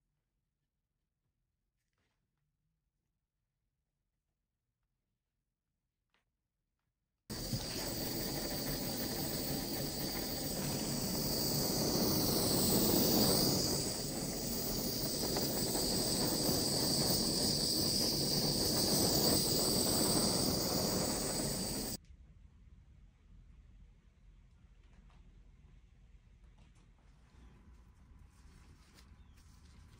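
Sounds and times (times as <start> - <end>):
gas torch hissing: 7.3 - 22.0.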